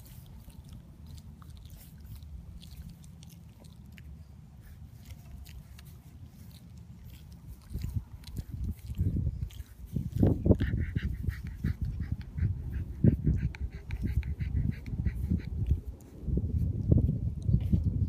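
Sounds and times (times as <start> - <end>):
puppies mouthing and sniffing: 0.0 - 18.0
low rumble: 7.3 - 18.0
puppy grunt: 10.4 - 15.6.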